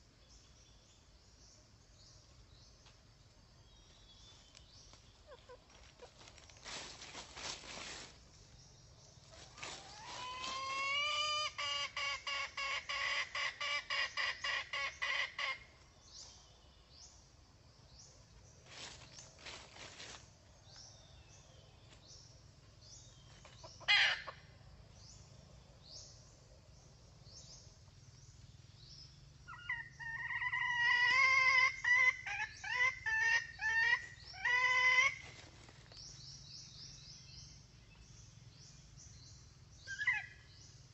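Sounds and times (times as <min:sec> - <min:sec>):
hen clucking: 0:05.2 - 0:06.8, 0:09.4 - 0:15.6.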